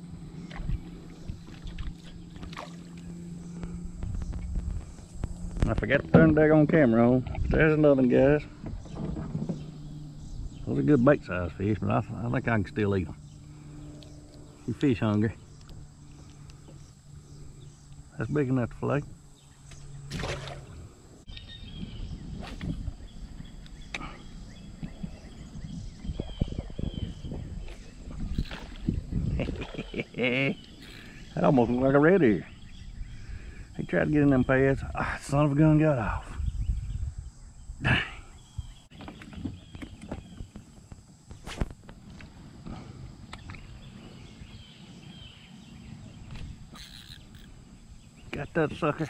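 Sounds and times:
wind rumble: 0.0s - 49.0s
microphone handling noise: 3.4s - 6.4s, 24.8s - 29.9s
faint bird chirping: 8.4s - 20.1s, 21.2s - 41.5s, 42.6s - 49.0s
faint high bird chirps: 21.3s - 34.5s, 43.3s - 49.0s.

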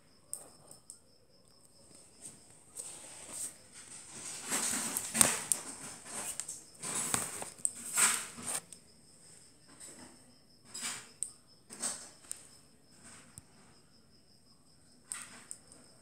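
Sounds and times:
brief rustling: 2.8s - 8.6s
click beetle clicking: 11.1s - 12.6s.

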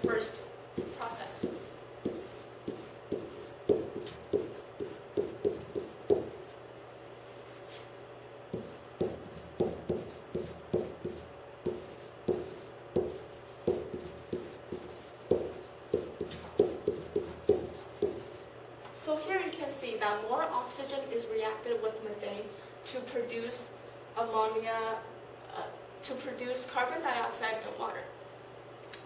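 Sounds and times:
pen writing on whiteboard: 0.8s - 6.5s, 8.5s - 18.4s.

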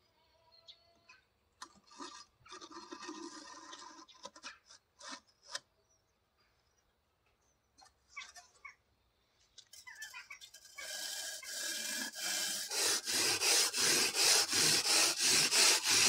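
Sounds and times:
brick scraping against wood: 10.0s - 16.0s.

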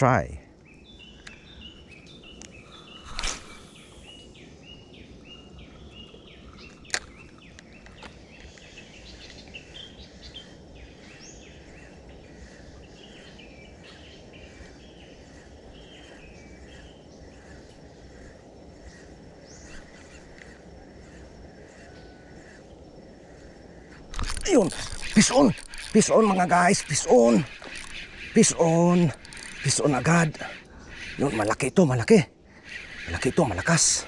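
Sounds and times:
low outdoor hiss: 0.0s - 34.0s
fishing rod swishing: 3.0s - 3.8s, 24.0s - 30.7s.

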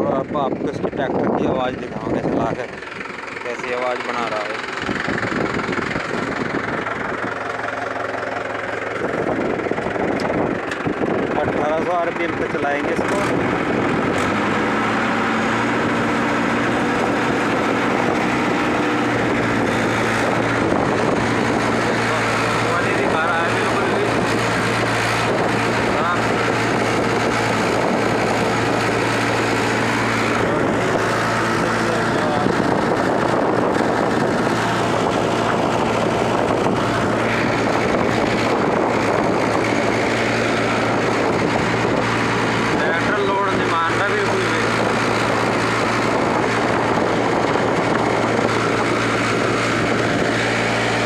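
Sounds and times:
tractor diesel engine running: 0.0s - 51.0s
rotavator tilling soil: 1.4s - 51.0s.

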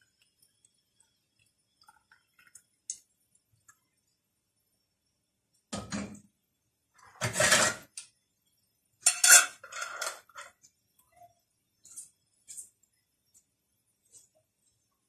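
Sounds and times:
metal lid scraping on glass jar: 7.1s - 7.9s, 9.1s - 10.6s.

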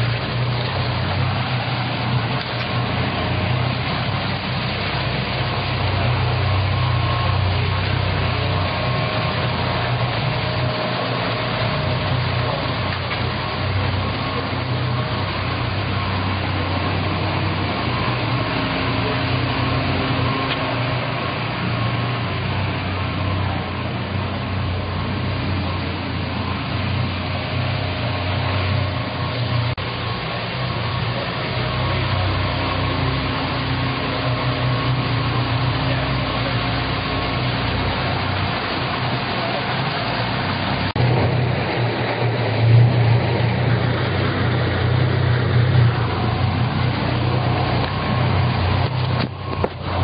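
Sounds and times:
outboard motor idling: 0.0s - 50.0s.

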